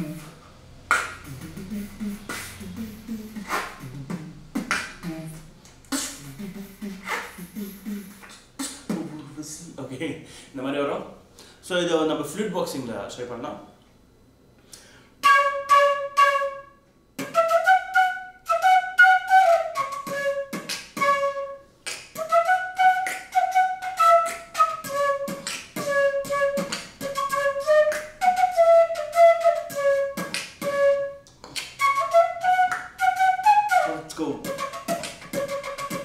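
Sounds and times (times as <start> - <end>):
bamboo flute melody: 0.0 - 5.4, 15.2 - 36.0
beatboxing percussive beats: 0.9 - 9.3, 19.8 - 21.1, 21.8 - 28.2, 29.6 - 30.7, 31.3 - 32.0, 34.1 - 36.0.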